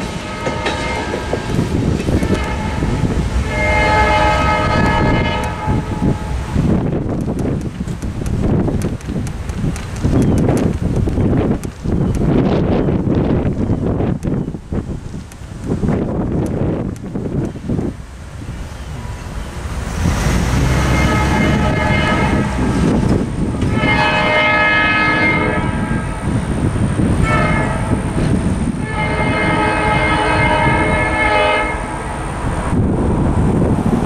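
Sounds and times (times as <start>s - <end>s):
locomotive horn blasts: 0.0s - 6.8s, 20.6s - 23.0s, 23.6s - 26.4s, 27.2s - 32.1s.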